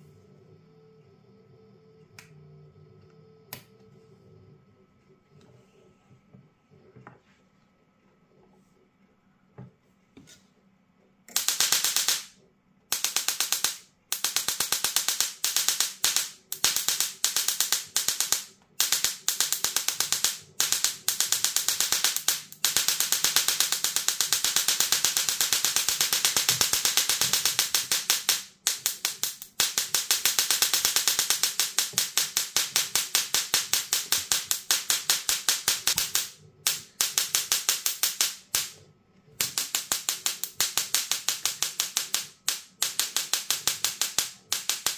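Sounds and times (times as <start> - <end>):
tesla coil spark crackling and buzzing: 11.3 - 38.8, 39.4 - 44.9.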